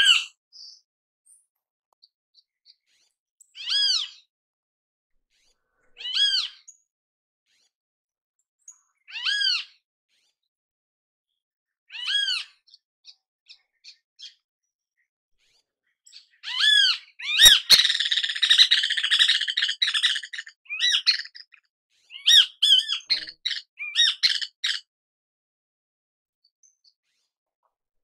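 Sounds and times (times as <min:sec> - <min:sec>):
bird calling and chattering: 0:16.4 - 0:24.9.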